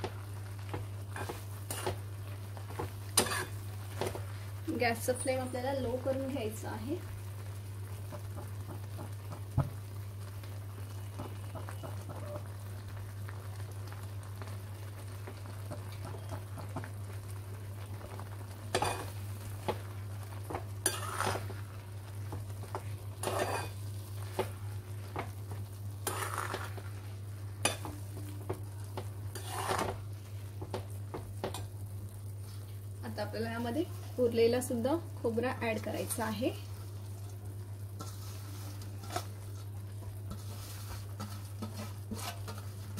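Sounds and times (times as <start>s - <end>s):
faint sizzle: 0.0s - 42.9s
metal spatula scraping a pan: 3.2s - 3.6s, 20.8s - 21.6s, 23.2s - 23.8s, 26.0s - 27.0s, 29.3s - 30.0s, 38.0s - 42.9s.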